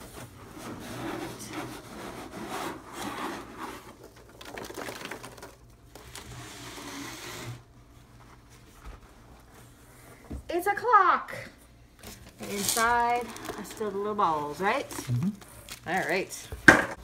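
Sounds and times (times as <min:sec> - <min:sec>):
cardboard scraping and sliding: 0:00.0 - 0:04.0
packing peanuts rustling: 0:12.0 - 0:16.3.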